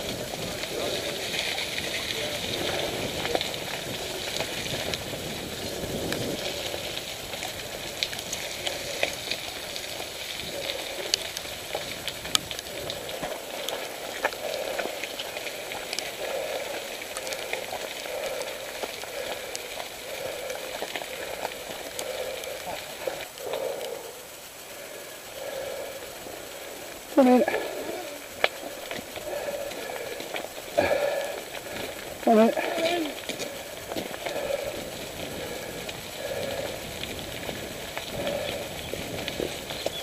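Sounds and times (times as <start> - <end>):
bike tyres rolling on wet gravel: 0.0 - 40.0.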